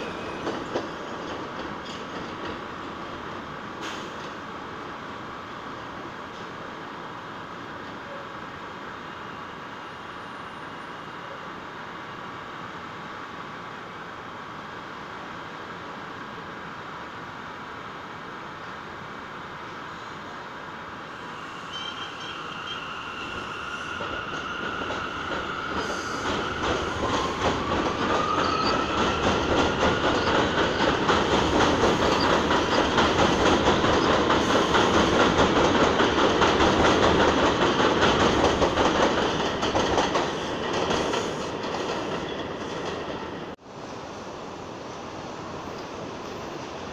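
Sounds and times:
wheels clacking over rail joints: 0.0 - 3.1, 24.0 - 43.2
subway train on elevated track: 0.0 - 46.9.

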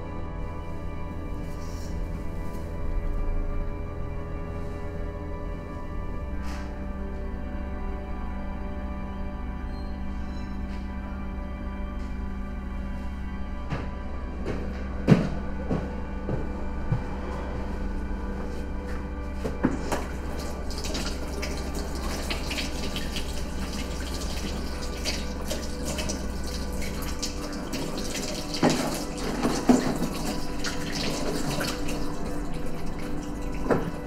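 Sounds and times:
tap running water into sink: 19.6 - 34.0.

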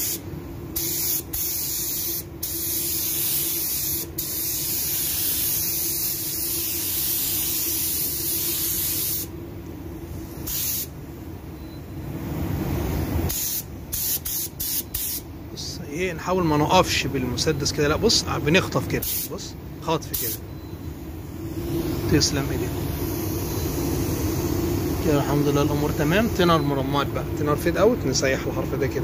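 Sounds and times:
spray gun hissing: 0.0 - 0.2, 0.8 - 9.3, 10.2 - 10.9, 13.3 - 15.2, 19.0 - 19.4, 22.9 - 26.4.

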